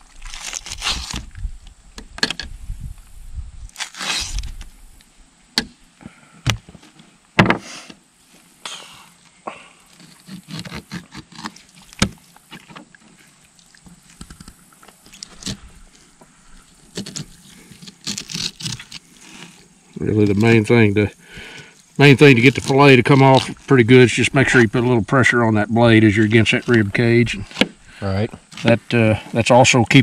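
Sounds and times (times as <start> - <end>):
knife scraping: 3.8 - 4.6, 10.0 - 11.7, 16.9 - 19.6.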